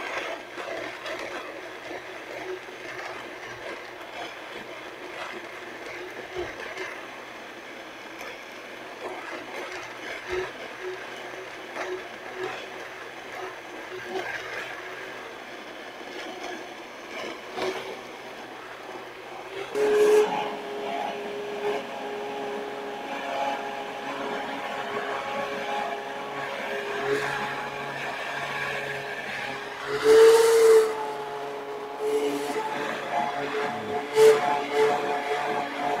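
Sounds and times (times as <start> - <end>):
immersion blender motor humming: 16.3 - 36.0.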